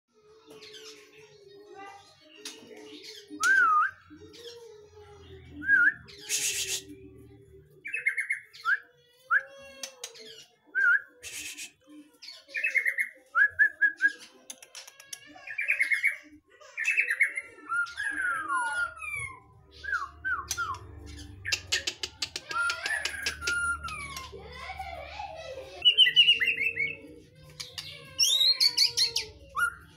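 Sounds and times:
songbird whistling and trilling: 0:03.0 - 0:04.5, 0:05.6 - 0:06.9, 0:07.8 - 0:09.5, 0:10.2 - 0:14.2, 0:16.8 - 0:24.4, 0:25.8 - 0:27.0, 0:27.7 - 0:29.9.

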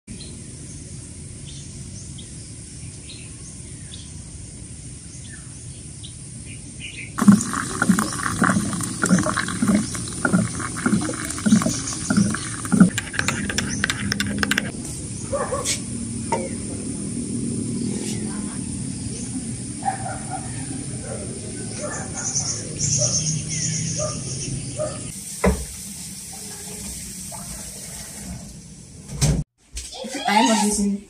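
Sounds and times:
birds chirping: 0:07.0 - 0:14.7, 0:17.8 - 0:25.1
spoon clinking against a mug: 0:07.2 - 0:14.7
water pouring into a mug: 0:07.2 - 0:14.7.

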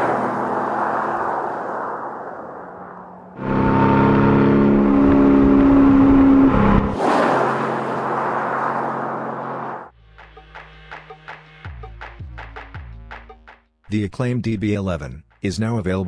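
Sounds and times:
car engine driving by: 0:00.0 - 0:09.9
tyre and road noise: 0:00.0 - 0:09.9.

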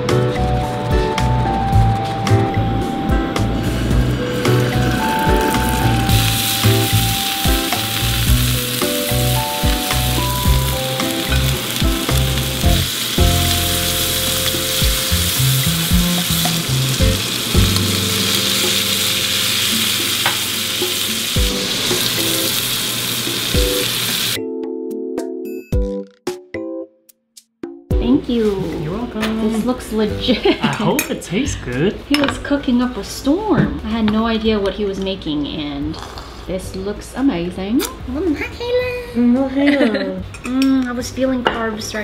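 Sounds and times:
background music with bass line: 0:00.0 - 0:18.9
scallops sizzling in hot oil: 0:04.2 - 0:24.4.

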